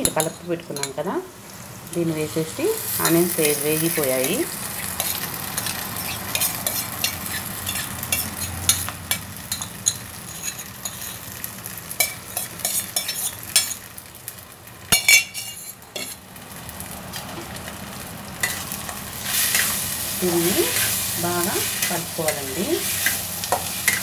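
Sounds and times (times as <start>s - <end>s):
frying sizzle: 0.0s - 24.0s
metal spoon scraping steel pan: 5.0s - 11.2s, 12.0s - 13.8s, 15.0s - 16.2s, 20.5s - 24.0s.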